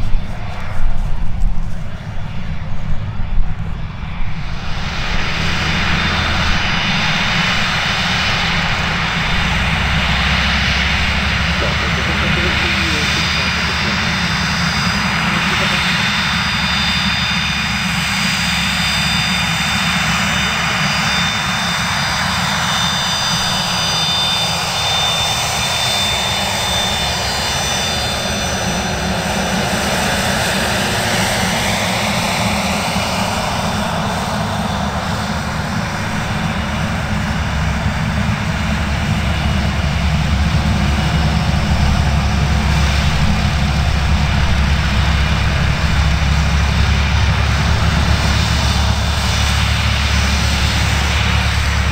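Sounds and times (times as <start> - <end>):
jet engines whining: 0.0 - 51.9
rushing noise: 4.4 - 19.5.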